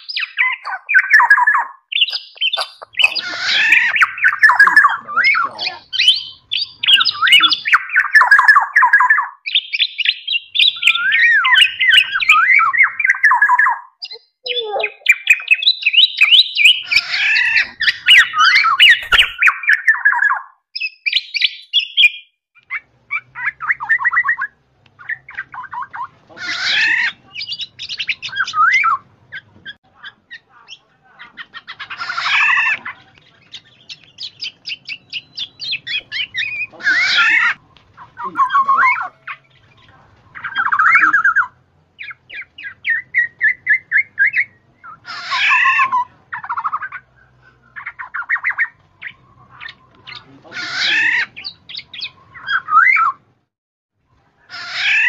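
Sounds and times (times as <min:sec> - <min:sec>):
oriole harsh squawks: 0:00.0 - 0:09.2, 0:14.6 - 0:20.4, 0:22.7 - 0:33.1, 0:34.8 - 0:53.2, 0:54.4 - 0:55.0
oriole calling: 0:00.0 - 0:09.3, 0:10.0 - 0:20.4, 0:21.4 - 0:53.2
bird short repeated notes: 0:18.4 - 0:19.5.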